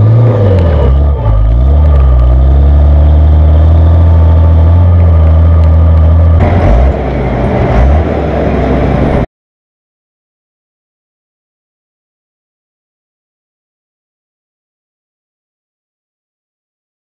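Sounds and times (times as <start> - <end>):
diesel engine drone: 0.0 - 9.3.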